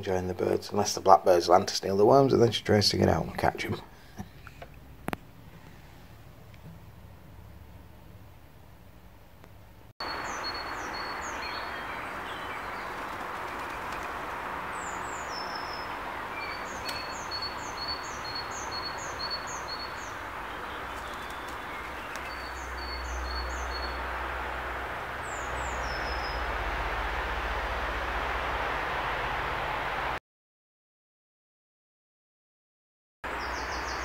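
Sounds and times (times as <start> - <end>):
outdoor hiss: 0.0 - 30.2, 33.3 - 34.0
songbird singing: 10.0 - 28.3, 33.3 - 34.0
low rumble: 23.0 - 30.1.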